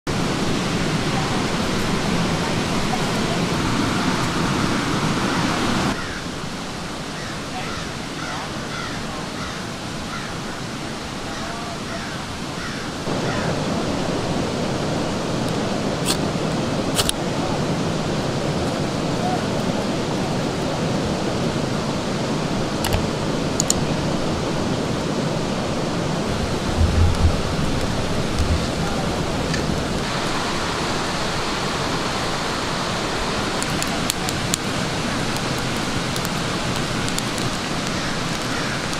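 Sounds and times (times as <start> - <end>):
campfire kindling crackling: 0.1 - 10.3, 12.6 - 38.9
river rushing over rocks: 0.1 - 38.9
low thumps: 26.3 - 30.1.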